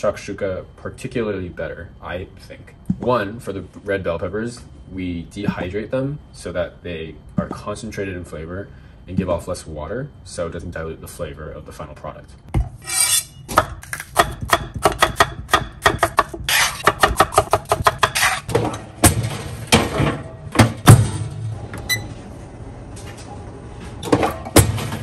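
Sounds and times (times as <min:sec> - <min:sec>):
knife chopping on wooden board: 0:13.5 - 0:18.5.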